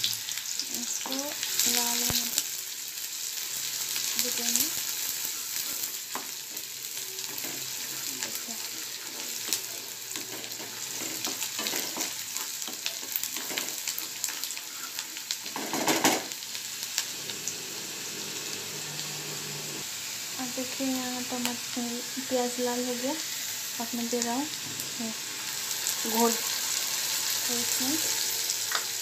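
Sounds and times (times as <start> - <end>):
onions sizzling in oil: 0.0 - 29.0
spatula stirring and scraping pan: 5.2 - 20.3.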